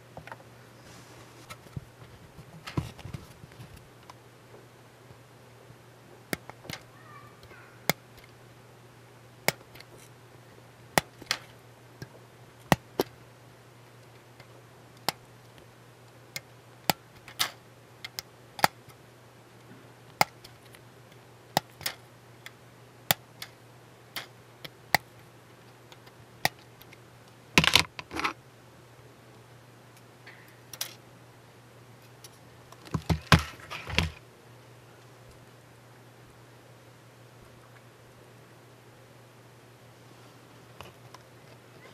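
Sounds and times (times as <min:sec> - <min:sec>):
small handling knocks: 0:27.6 - 0:28.4, 0:32.8 - 0:34.2.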